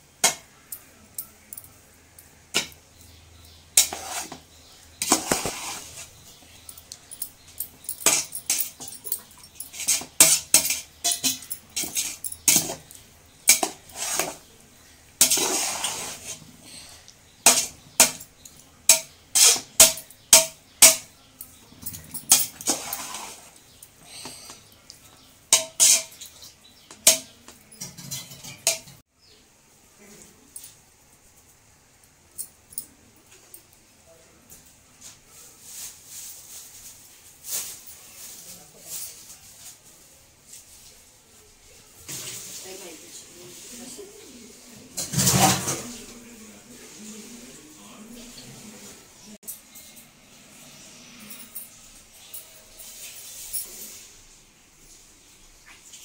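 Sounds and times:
metal spatula clanking on pot: 0:03.7 - 0:04.4, 0:07.5 - 0:14.4, 0:15.2 - 0:16.1, 0:17.4 - 0:23.4, 0:25.5 - 0:29.0.

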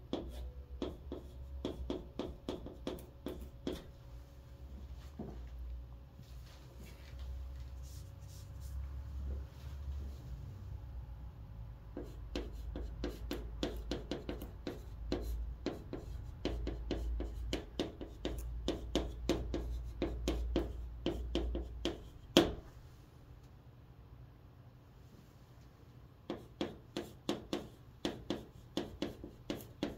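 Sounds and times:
chalk writing on a chalkboard: 0:00.1 - 0:03.9, 0:12.0 - 0:22.7, 0:26.3 - 0:29.9.

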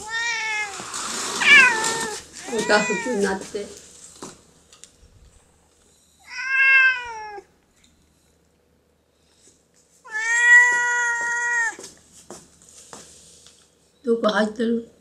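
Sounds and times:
cat meowing: 0:00.0 - 0:03.4, 0:06.2 - 0:07.5, 0:10.1 - 0:11.8.

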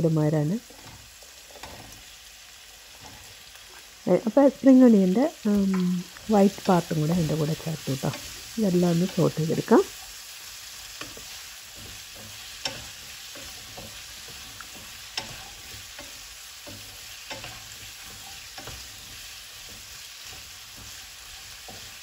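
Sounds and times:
vegetables sizzling in oil: 0:00.0 - 0:22.0
spoon tapping and scraping pan: 0:00.6 - 0:02.2, 0:05.7 - 0:09.3, 0:10.6 - 0:22.0.

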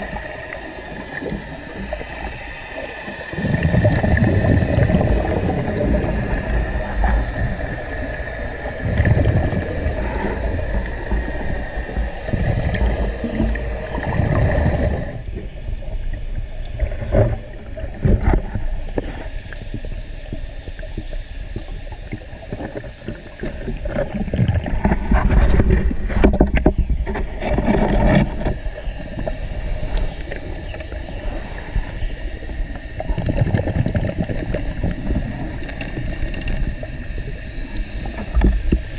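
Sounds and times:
exhaled bubbles rushing: 0:00.0 - 0:38.9
steady high whine: 0:00.0 - 0:38.9
scuba regulator breathing: 0:01.4 - 0:15.8, 0:28.7 - 0:38.4.

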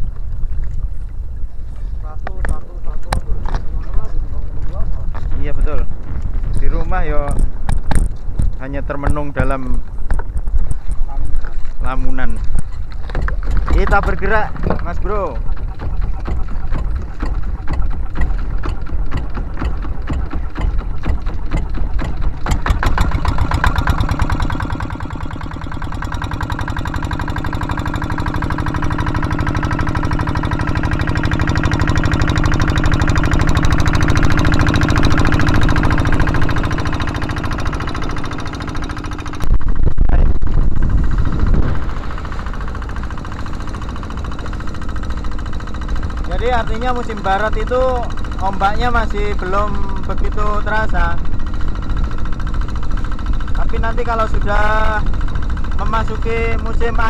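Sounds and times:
boat diesel engine running: 0:00.0 - 0:57.0
sudden loud rush of noise: 0:39.4 - 0:43.2.

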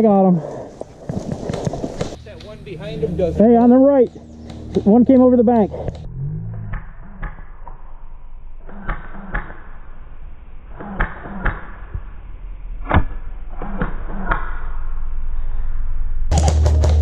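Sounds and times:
low steady rumble: 0:02.2 - 0:08.7.

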